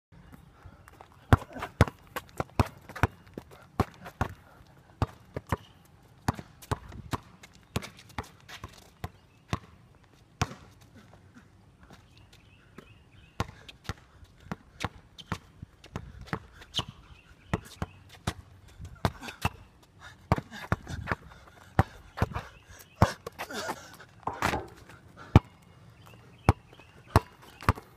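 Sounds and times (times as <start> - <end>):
basketball bouncing on concrete: 1.0 - 5.7, 6.3 - 9.7, 10.4 - 10.8, 13.4 - 19.7, 20.3 - 23.6, 24.2 - 25.6, 26.4 - 27.9.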